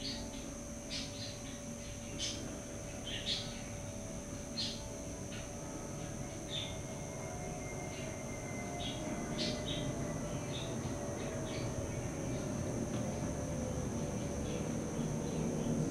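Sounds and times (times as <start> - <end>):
songbirds chirping: 0.0 - 7.2, 7.8 - 13.3
low background noise: 0.0 - 15.9.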